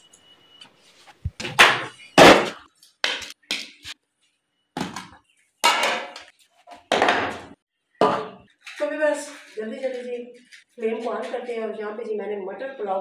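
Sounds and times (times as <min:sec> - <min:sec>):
cookware knocks and thuds: 0:04.8 - 0:08.5.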